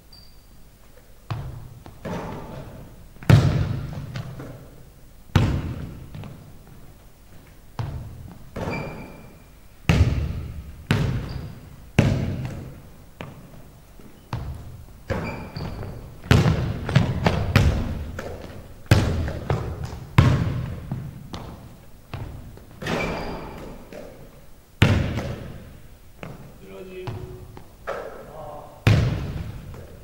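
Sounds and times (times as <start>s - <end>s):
basketball bouncing on hardwood: 1.3s - 4.6s, 5.4s - 6.4s, 7.8s - 9.1s, 9.9s - 13.4s, 14.3s - 24.1s, 24.8s - 28.0s, 28.8s - 30.0s.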